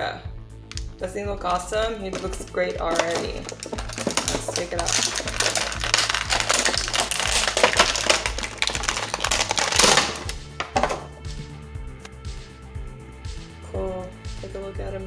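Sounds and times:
background music: 0.0s - 15.0s
plastic bag crinkling: 2.1s - 11.1s.

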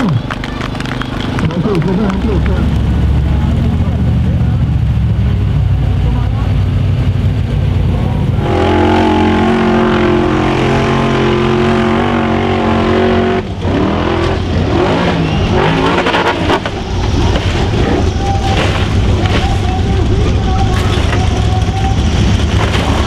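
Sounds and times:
buggy engine revving: 0.0s - 23.0s
buggy crashing and rolling: 15.2s - 23.0s.

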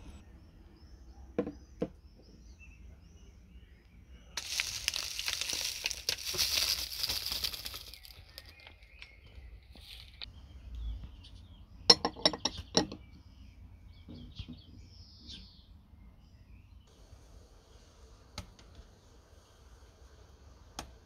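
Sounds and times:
glass bowl set down: 11.9s - 13.0s
glass clinking: 11.9s - 13.0s.

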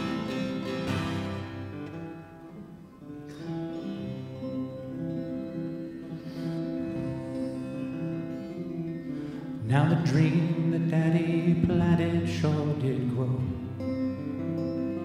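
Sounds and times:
acoustic guitar playing: 0.0s - 15.0s.

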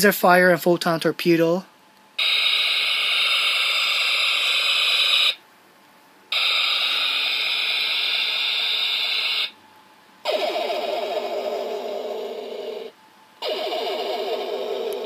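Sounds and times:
harsh phaser hiss: 2.2s - 5.4s, 6.3s - 9.6s.

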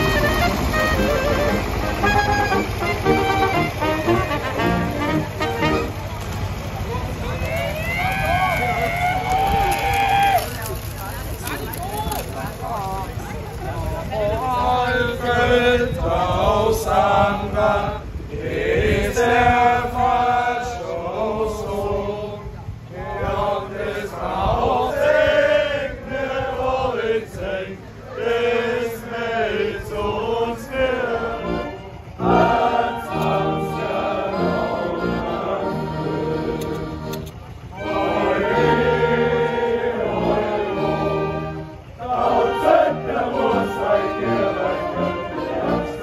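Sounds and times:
crowd singing in unison: 14.1s - 46.0s.

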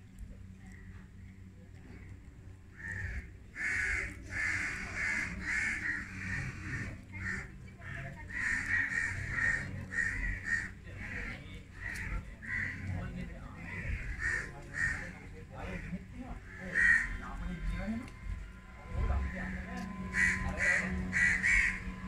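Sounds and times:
crows cawing: 2.7s - 22.0s.

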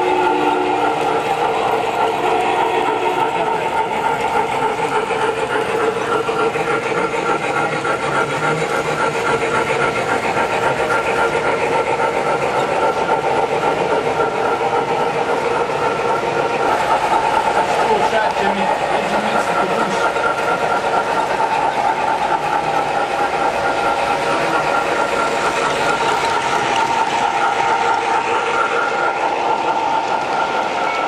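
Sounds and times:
electronic steam locomotive sounds: 0.0s - 31.0s
model train wheels rumbling: 0.0s - 31.0s.

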